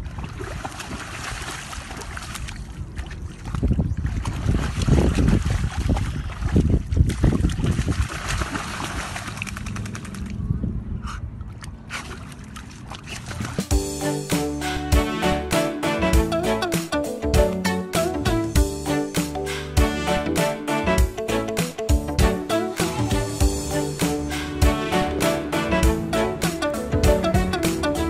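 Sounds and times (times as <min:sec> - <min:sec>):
dog splashing in muddy water: 0:00.0 - 0:10.4, 0:11.7 - 0:13.7.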